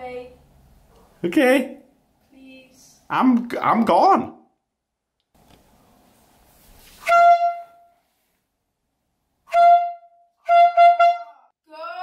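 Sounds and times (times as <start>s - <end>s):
air horn blasts: 7.0s - 8.0s, 9.4s - 11.5s.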